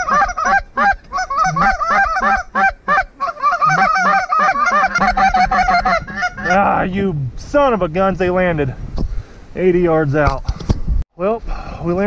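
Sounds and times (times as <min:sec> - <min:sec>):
geese honking: 0:00.0 - 0:06.9.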